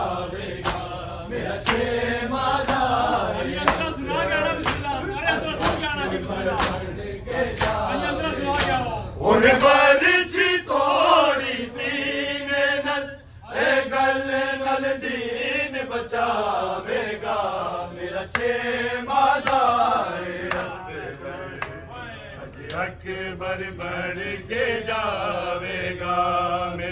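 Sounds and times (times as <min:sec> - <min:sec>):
men chanting in unison: 0:00.0 - 0:26.9
chest-beating slaps: 0:00.6 - 0:01.0, 0:01.6 - 0:02.0, 0:02.6 - 0:03.0, 0:03.6 - 0:04.0, 0:04.6 - 0:05.0, 0:05.6 - 0:05.9, 0:06.5 - 0:06.9, 0:07.5 - 0:07.9, 0:19.4 - 0:19.8, 0:20.4 - 0:20.8.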